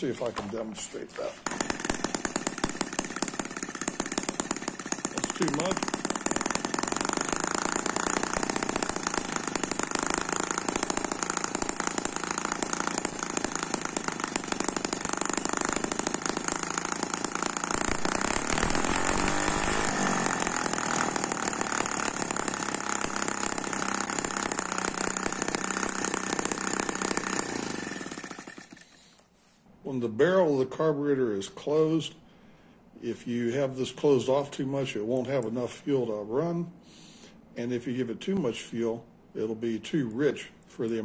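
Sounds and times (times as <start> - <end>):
model gasoline engine running: 1.4 - 29.0.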